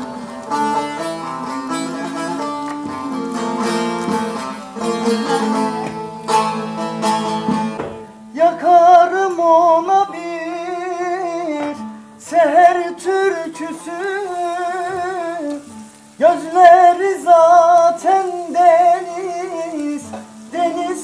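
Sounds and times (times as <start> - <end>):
plucked saz: 0.0 - 16.0
man singing: 0.0 - 21.0.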